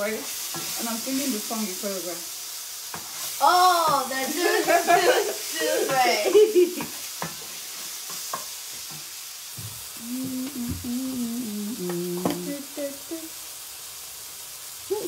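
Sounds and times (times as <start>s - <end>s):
steady high hiss: 0.0s - 15.0s
woman humming: 9.9s - 13.4s.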